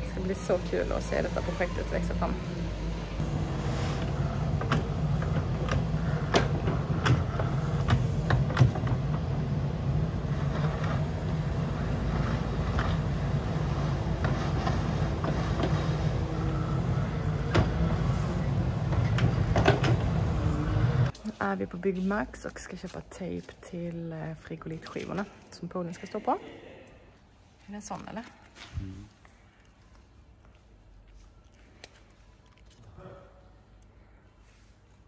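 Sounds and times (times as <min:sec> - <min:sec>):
diesel engine running: 0:00.0 - 0:21.1.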